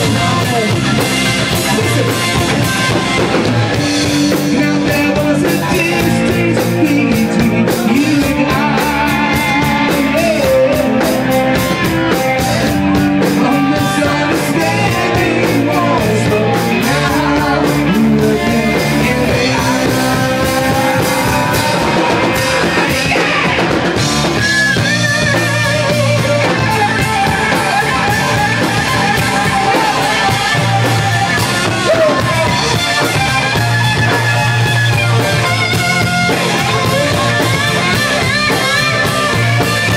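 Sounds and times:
man singing into a microphone: 0.0 - 1.0, 4.2 - 11.8, 12.4 - 23.6, 24.7 - 32.8
bass guitar: 0.0 - 39.9
drum kit: 0.0 - 39.9
electric guitars: 0.0 - 39.9.

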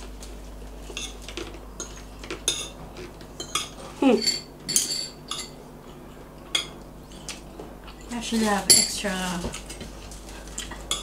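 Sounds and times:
cutlery clinking on plates: 3.4 - 5.6, 10.5 - 11.0.

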